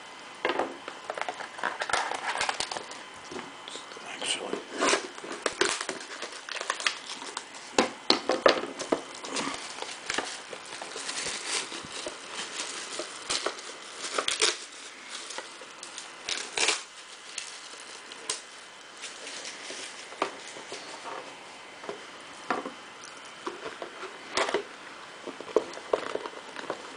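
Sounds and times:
plastic wrap crinkling and tearing: 1.2 - 3.1, 3.7 - 21.4.

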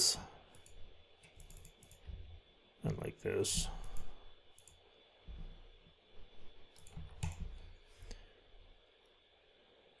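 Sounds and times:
computer mouse and keyboard clicks: 0.5 - 2.2, 6.7 - 7.6.

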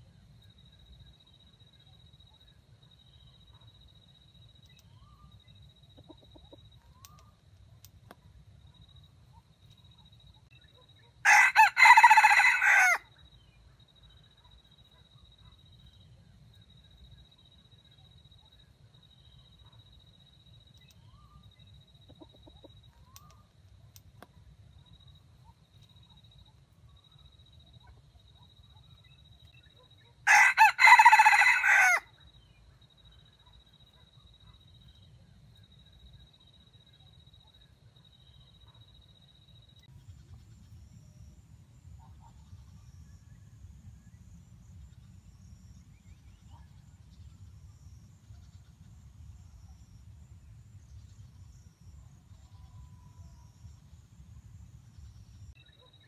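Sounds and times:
rooster crowing: 11.2 - 13.1, 30.3 - 32.1.

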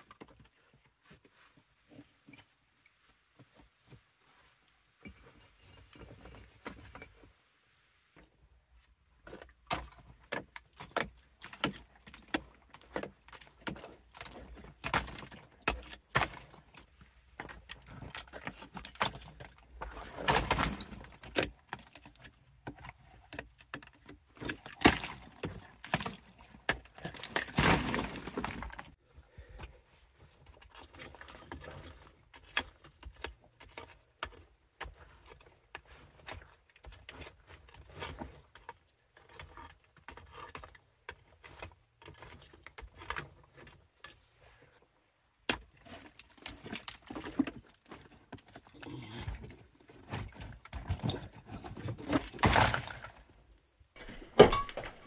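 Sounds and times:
rock crumbling and falling: 9.2 - 29.0, 45.4 - 55.0
rock chips and grit falling: 24.4 - 29.0.

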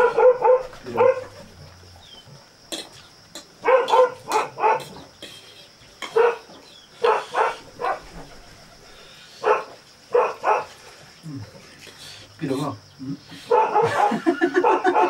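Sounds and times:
dog barking: 0.0 - 1.4, 3.6 - 5.0, 6.0 - 8.1, 9.4 - 10.7, 13.5 - 15.0.

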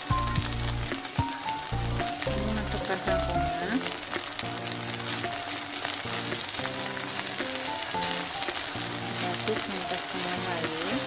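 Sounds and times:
background music: 0.0 - 11.0
vegetables sizzling in a wok: 0.0 - 11.0
wooden spatula turning food: 0.0 - 11.0.

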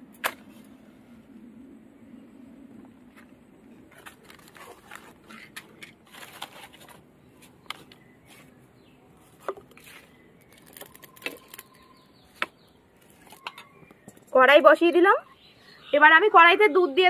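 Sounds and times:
paper and plastic crackling in fire: 3.9 - 8.0, 9.7 - 11.9.

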